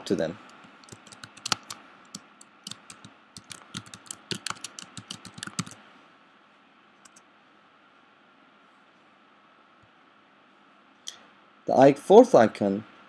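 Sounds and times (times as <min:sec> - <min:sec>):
typing on computer keyboard: 0:00.6 - 0:05.8, 0:07.0 - 0:07.2.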